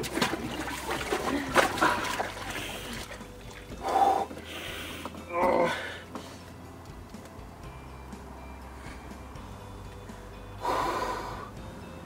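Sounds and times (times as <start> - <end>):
water sloshing in plastic tub: 0.0 - 3.9
man breathing sharply: 3.8 - 6.6, 10.6 - 11.6.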